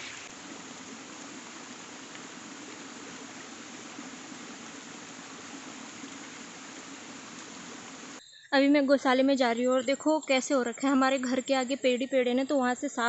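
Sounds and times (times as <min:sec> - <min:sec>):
light rain hiss: 0:00.0 - 0:08.2
water running down stone path: 0:00.0 - 0:08.2.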